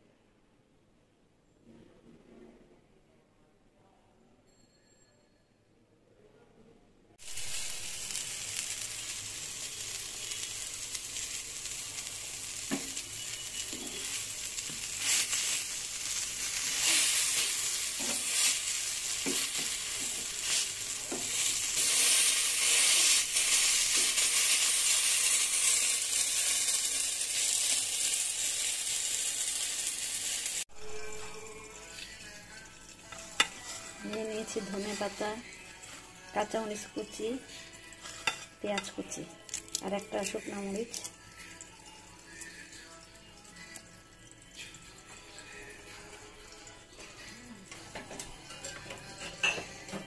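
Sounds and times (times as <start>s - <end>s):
vegetables sizzling in oil: 7.2s - 41.4s.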